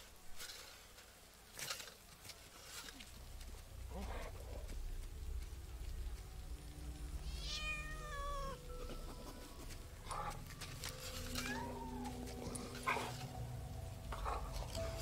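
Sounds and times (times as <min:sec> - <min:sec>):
low steady rumble: 0:03.0 - 0:15.0
kitten meowing: 0:07.3 - 0:08.6.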